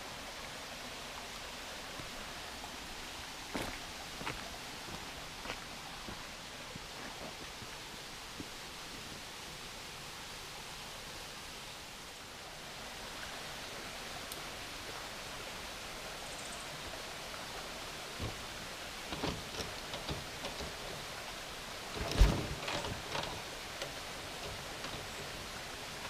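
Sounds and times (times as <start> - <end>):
outdoor background hiss: 0.0 - 26.0
light knocks and clicks: 18.2 - 18.4, 19.1 - 21.1.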